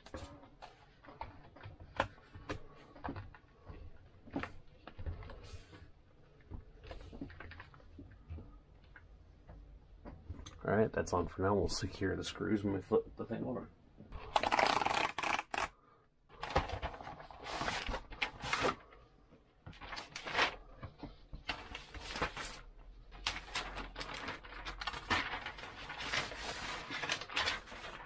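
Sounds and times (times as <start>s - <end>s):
cardboard and paper rustling: 16.4s - 19.0s, 19.7s - 28.0s.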